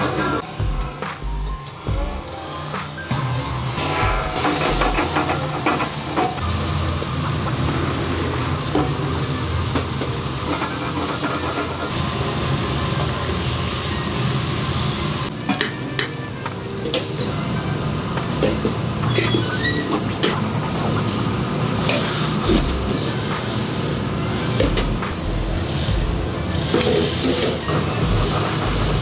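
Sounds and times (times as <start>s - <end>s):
shrimp and onions sizzling in pan: 1.3s - 18.8s.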